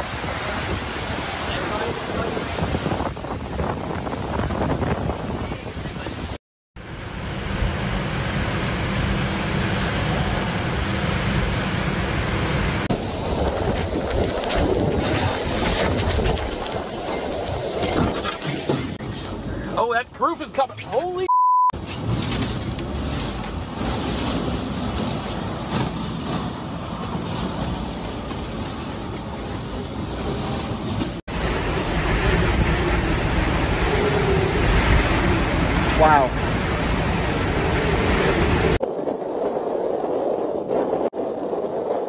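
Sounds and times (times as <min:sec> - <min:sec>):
wind buffeting microphone: 0:00.0 - 0:06.4, 0:07.2 - 0:18.7, 0:22.8 - 0:42.0
heavy rain: 0:00.0 - 0:16.8, 0:22.0 - 0:38.8.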